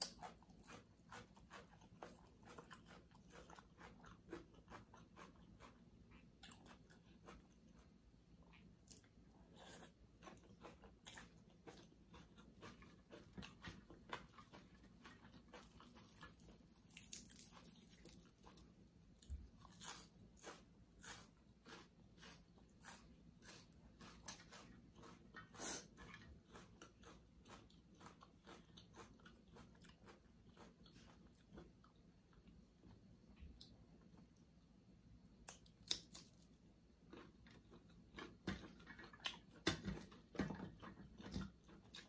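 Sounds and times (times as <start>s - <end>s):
person chewing and crunching: 0.0s - 34.4s, 35.3s - 42.0s.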